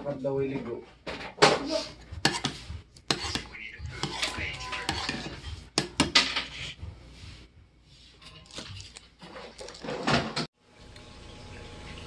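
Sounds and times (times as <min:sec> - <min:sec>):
dishes and food handled on table: 0:00.9 - 0:10.5.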